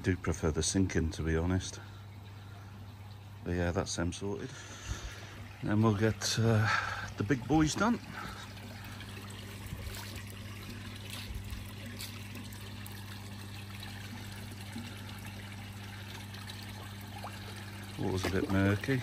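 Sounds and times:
steady low hum: 0.0s - 19.0s
water pouring into pond: 4.3s - 19.0s.

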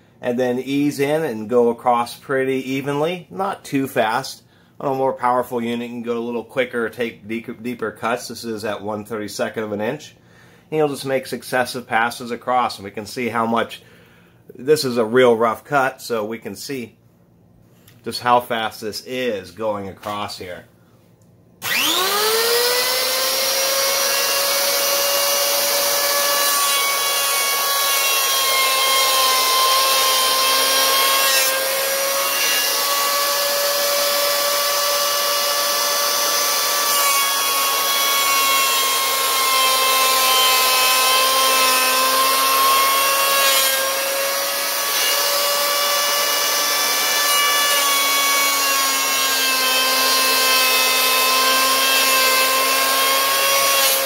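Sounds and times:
electric hand planer whine: 21.6s - 54.0s.

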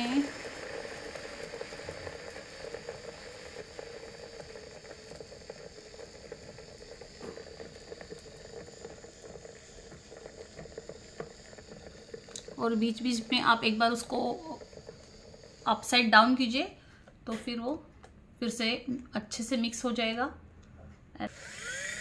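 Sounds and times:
mini blender motor humming: 0.0s - 16.8s, 21.3s - 22.0s.

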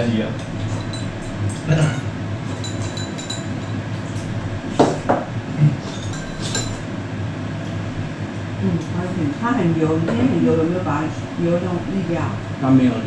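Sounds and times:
steady low hum: 0.0s - 13.0s
cutlery clinking on ceramic bowls: 0.5s - 4.2s, 5.8s - 6.8s.

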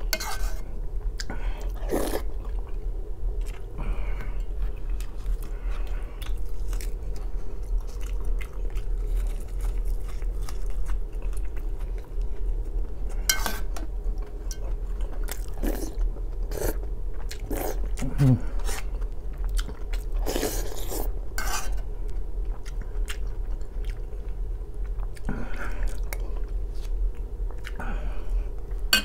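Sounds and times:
close chewing and biting: 4.5s - 12.7s, 14.2s - 21.1s, 22.1s - 27.8s.

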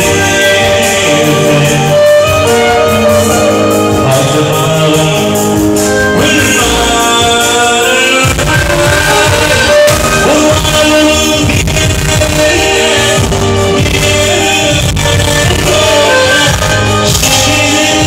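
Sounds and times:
man singing into a microphone: 0.0s - 18.0s
synthesizer keyboard: 0.0s - 18.0s
strong low beat: 8.2s - 15.9s.

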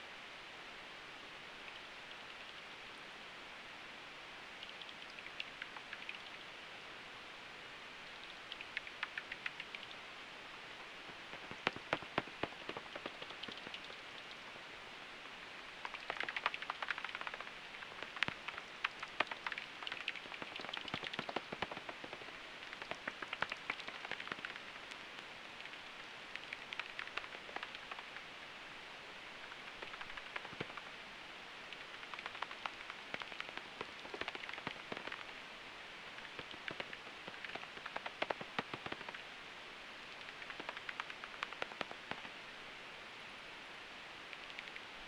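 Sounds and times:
bat echolocation clicks: 4.6s - 6.4s, 8.4s - 10.0s, 11.3s - 14.4s, 15.8s - 28.3s, 29.4s - 31.0s, 31.6s - 35.4s, 36.1s - 39.3s, 40.1s - 42.4s, 44.3s - 44.9s.

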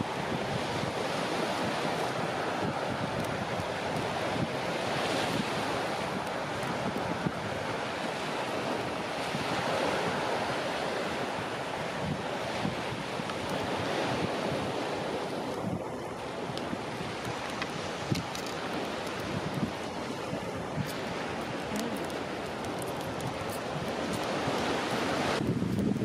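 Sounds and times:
sea surf: 0.0s - 26.0s
wind on microphone: 0.0s - 26.0s
faint clicks: 16.5s - 19.7s, 20.8s - 25.0s.

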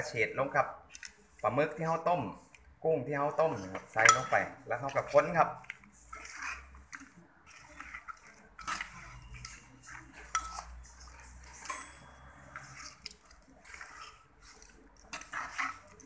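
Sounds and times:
spoon scraping in clay mortar: 0.9s - 16.0s
sharp clinks: 11.6s - 12.4s.

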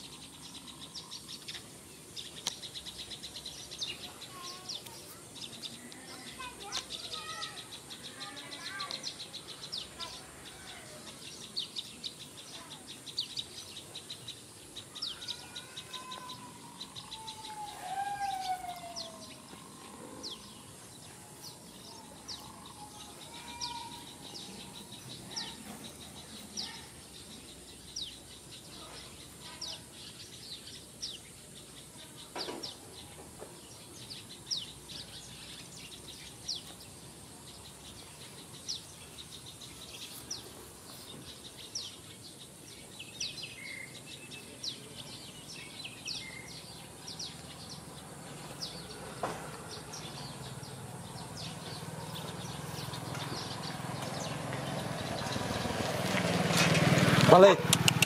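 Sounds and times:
low falling bird calls: 0.0s - 31.2s, 37.7s - 58.0s
high insect drone: 0.0s - 32.2s
small birds chirping: 0.0s - 58.0s.

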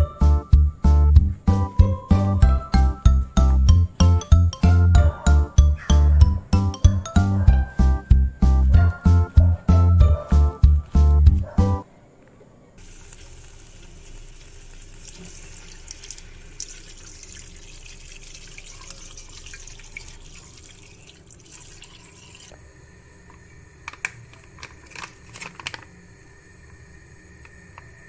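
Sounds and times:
crackling hiss: 12.8s - 17.9s, 22.4s - 28.0s.

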